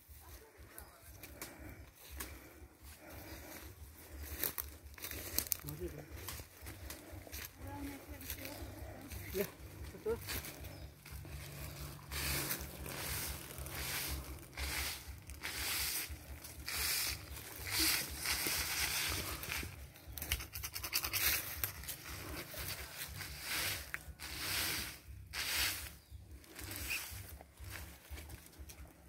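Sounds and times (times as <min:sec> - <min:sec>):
low rumble: 0:05.9 - 0:19.8
branch swishing on concrete: 0:12.1 - 0:16.1.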